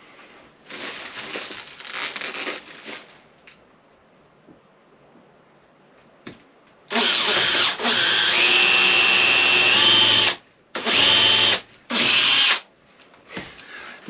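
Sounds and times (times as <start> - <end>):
cordless drill whining: 6.9 - 12.6.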